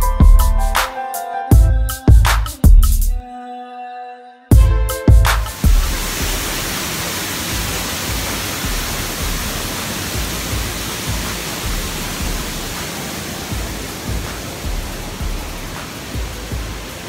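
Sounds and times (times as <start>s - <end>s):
waterfall rushing: 5.2s - 17.0s
low rumbling bumps: 7.6s - 12.8s.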